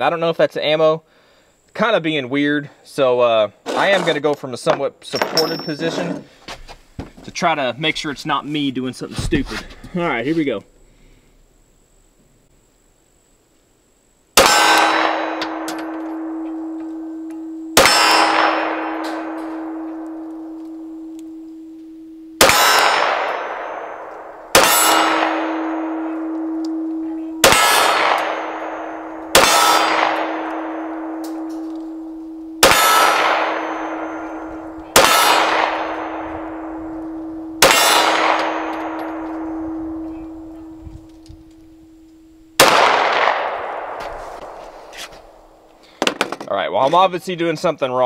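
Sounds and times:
steel target clanging and ringing: 0:05.2 - 0:05.9, 0:14.4 - 0:21.4, 0:22.4 - 0:40.5
pistol shots: 0:14.4 - 0:16.8, 0:17.8 - 0:21.1, 0:22.4 - 0:40.5, 0:42.6 - 0:44.6.

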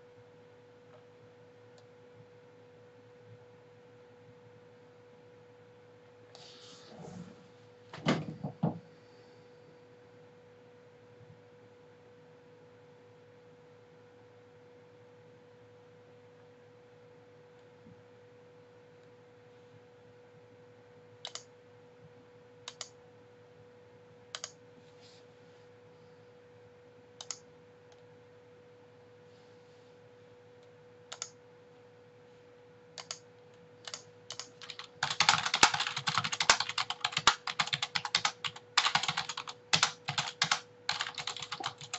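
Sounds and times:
faint high hum: 0:00.0 - 0:41.9
fast keyboard typing: 0:33.9 - 0:41.9.

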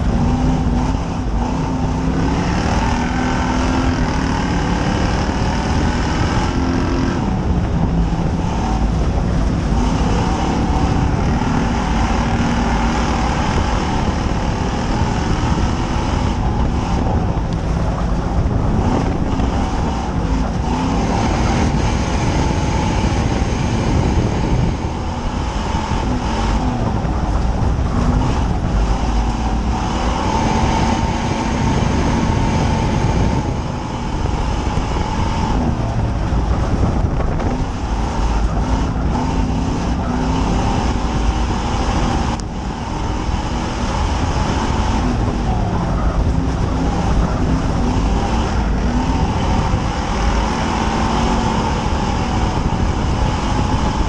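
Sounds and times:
race car engine rumble: 0:00.0 - 0:54.0.

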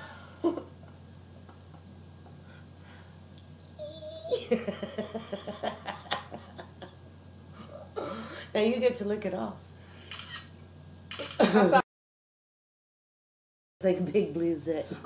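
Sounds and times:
woman laughing: 0:03.8 - 0:07.0, 0:11.4 - 0:11.8.

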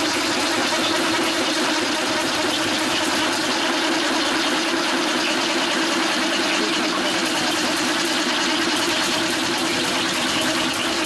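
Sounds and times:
drilling machine hum: 0:00.0 - 0:11.0.

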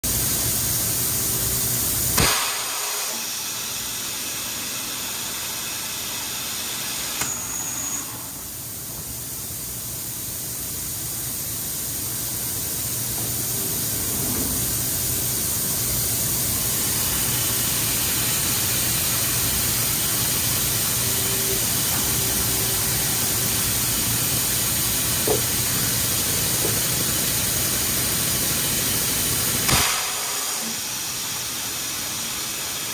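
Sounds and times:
molding machine hiss and hum: 0:00.0 - 0:32.9
brief high whistle: 0:07.2 - 0:08.4
loud machine clunk: 0:29.7 - 0:30.6.

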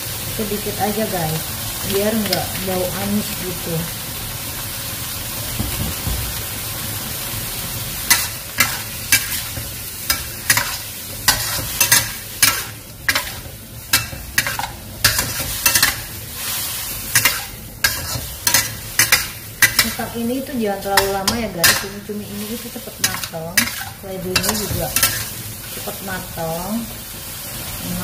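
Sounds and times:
food sizzling in a wok: 0:00.0 - 0:28.0
metal spatula scraping a wok: 0:08.1 - 0:20.1, 0:20.8 - 0:26.0.

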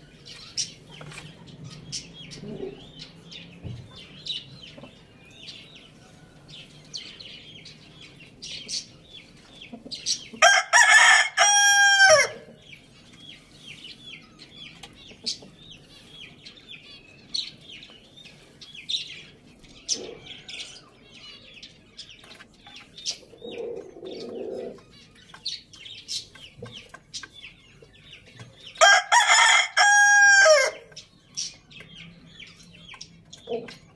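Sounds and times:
rooster crowing: 0:10.4 - 0:12.5, 0:28.8 - 0:30.9.

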